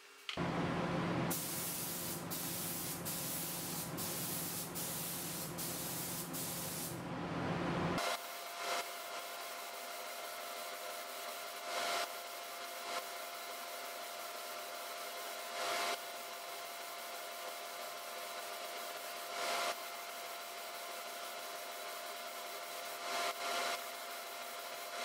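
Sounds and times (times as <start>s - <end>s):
fan hum with faint whine: 0.4s - 8.0s
spray gun hissing: 1.2s - 7.0s.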